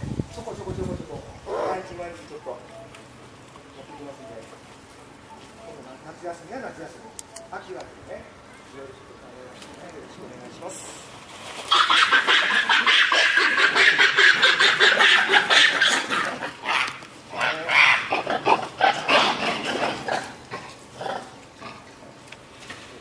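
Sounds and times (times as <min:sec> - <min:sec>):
monkeys screaming: 0:11.7 - 0:21.4.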